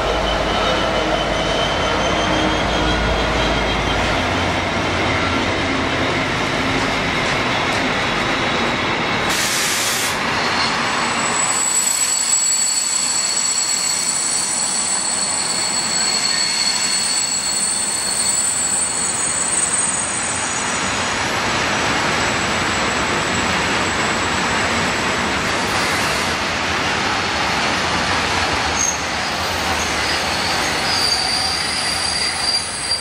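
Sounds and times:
train wheels rumbling on rails: 0.0 - 33.0
high wheel squeal: 0.1 - 4.4, 10.3 - 21.0, 28.8 - 33.0
brief hiss: 9.3 - 10.2.

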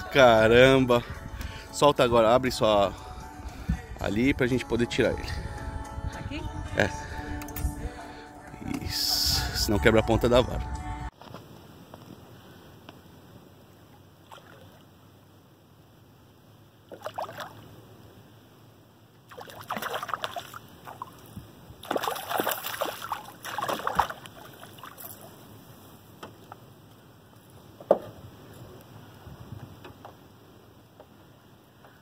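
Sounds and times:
fish splashing at water surface: 19.3 - 21.2, 21.8 - 25.3.

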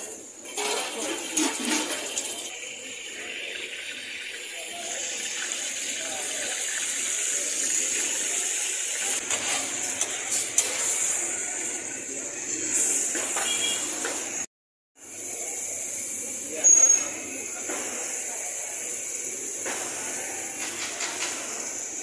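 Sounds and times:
oil sizzling on griddle: 0.0 - 22.0
metal spatula scraping and tapping: 0.5 - 2.3, 9.3 - 11.0.

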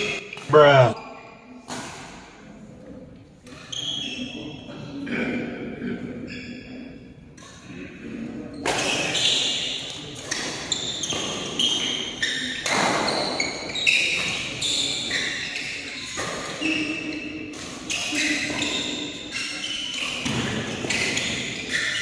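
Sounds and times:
shoes squeaking on court: 3.5 - 4.7, 8.5 - 22.0.

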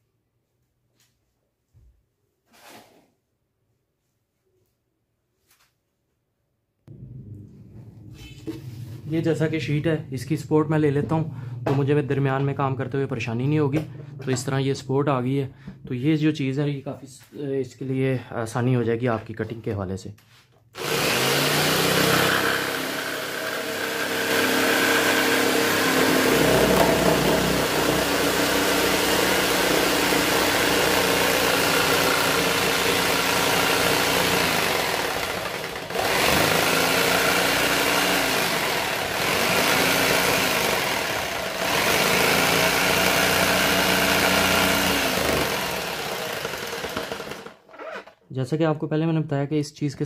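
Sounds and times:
electric jigsaw cutting acrylic: 20.8 - 48.2.

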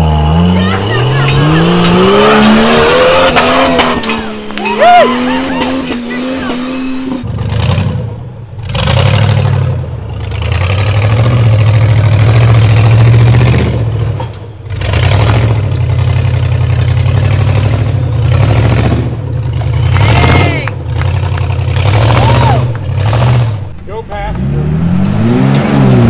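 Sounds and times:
off-road engine revving: 0.0 - 26.0.

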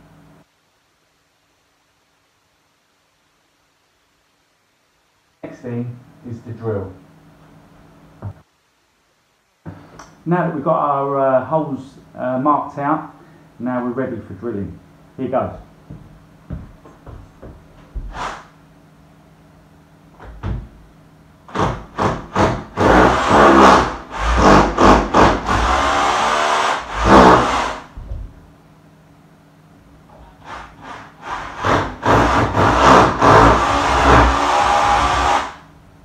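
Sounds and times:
power drill drilling into wall: 21.5 - 28.0, 30.4 - 35.6.

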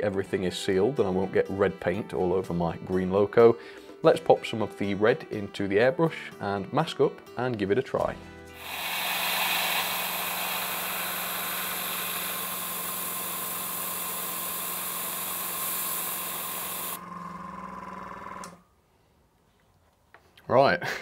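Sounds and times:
airbrush spraying hiss: 8.6 - 17.0
compressor hum: 8.6 - 18.6.

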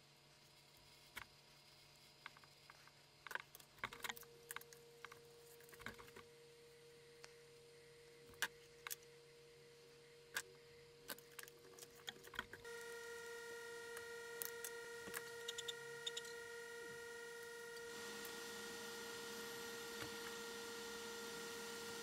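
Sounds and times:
faint high hum: 0.0 - 22.0.

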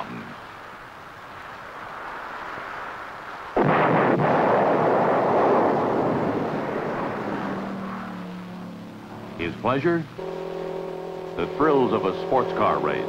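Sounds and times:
film soundtrack hiss: 0.0 - 13.0
rock-blasting explosion: 3.5 - 8.3.

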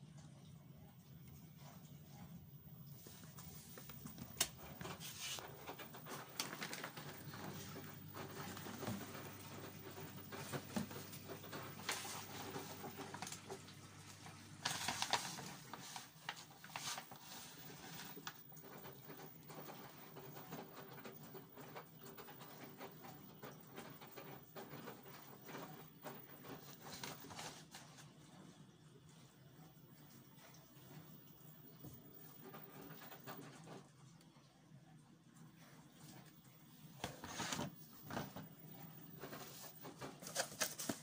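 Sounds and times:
low steady hum: 0.0 - 20.0
plastic pouch crinkling: 3.8 - 9.0, 14.6 - 18.4.

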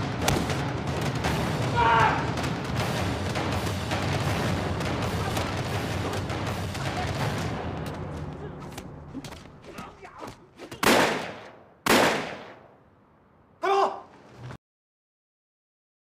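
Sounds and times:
dense background sound: 0.0 - 14.5
gunshots with echo: 10.8 - 12.8.

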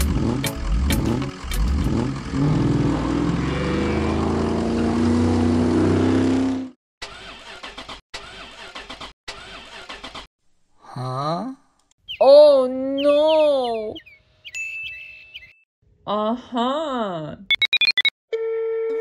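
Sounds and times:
engine spluttering and clicking: 0.0 - 3.4
truck engine revving: 0.0 - 6.8.

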